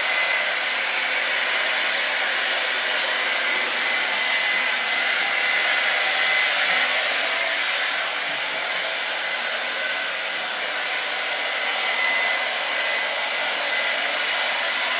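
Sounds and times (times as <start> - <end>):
blow dryer running: 0.0 - 14.9.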